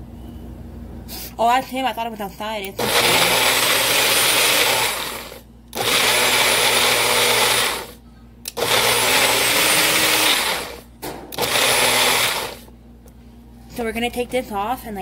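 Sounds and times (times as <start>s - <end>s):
blender running in pulses: 2.8s - 12.7s.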